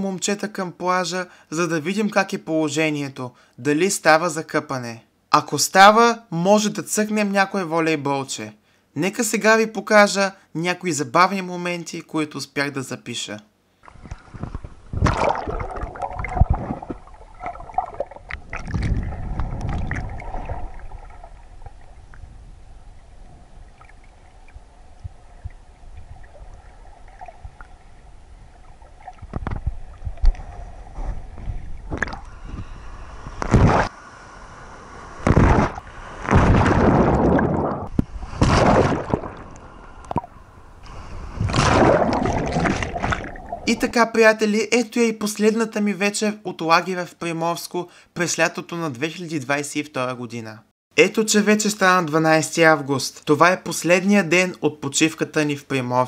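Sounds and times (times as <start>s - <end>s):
sea water sloshing and gurgling: 13.8s - 33.9s, 35.2s - 44.0s
waves splashing: 31.7s - 44.0s.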